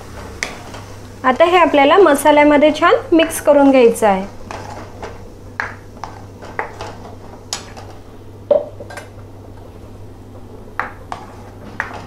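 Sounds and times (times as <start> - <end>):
spatula scraping a metal pan: 11.1 - 12.0.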